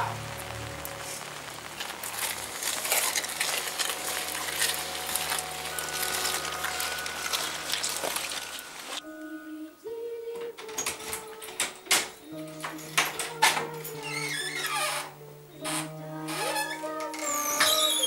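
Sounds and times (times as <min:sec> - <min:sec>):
rain on pavement: 0:00.0 - 0:09.0
soft background music: 0:00.0 - 0:18.0.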